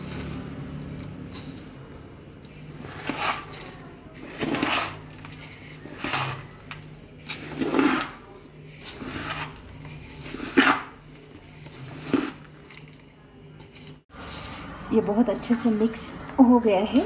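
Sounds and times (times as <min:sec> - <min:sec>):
hand mixing crumbly mixture: 0:00.0 - 0:14.4.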